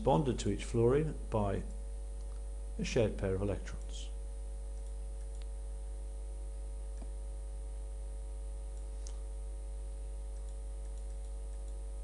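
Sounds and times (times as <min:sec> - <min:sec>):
low electrical hum: 0:00.0 - 0:12.0
computer mouse clicks: 0:04.7 - 0:05.5, 0:10.3 - 0:11.8.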